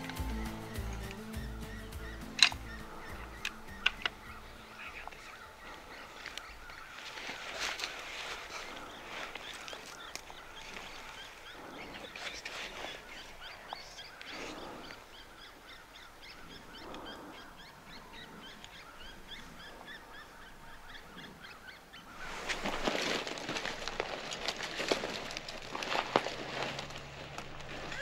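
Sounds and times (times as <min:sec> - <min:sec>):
rustling and crunching with clicks: 0:00.0 - 0:15.2, 0:22.2 - 0:28.0
small birds chirping: 0:00.0 - 0:28.0.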